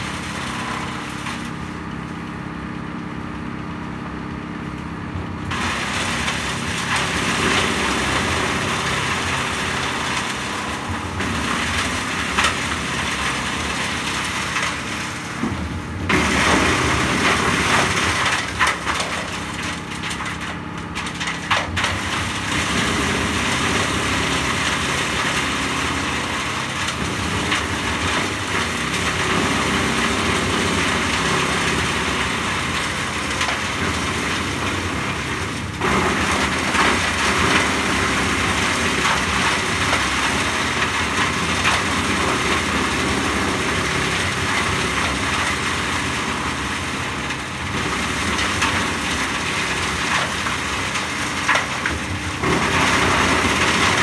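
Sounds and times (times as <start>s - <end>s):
wood chipper running: 0.0s - 54.0s.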